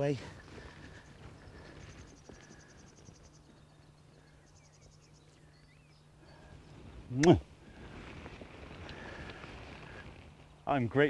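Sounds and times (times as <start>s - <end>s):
bird chirps: 0.4s - 6.9s.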